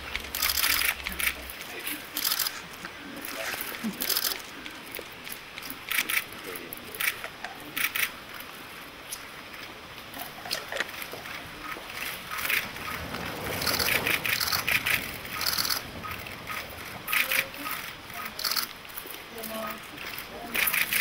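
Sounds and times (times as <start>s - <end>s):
camera shutters clicking: 0.1s - 1.4s, 2.1s - 4.5s, 13.6s - 14.8s, 17.1s - 18.8s.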